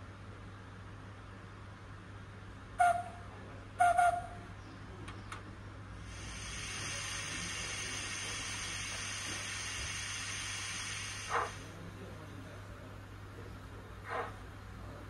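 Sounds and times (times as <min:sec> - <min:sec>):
model train whistle toot: 0:02.8 - 0:03.2, 0:03.8 - 0:04.2
steam hissing: 0:06.0 - 0:11.8.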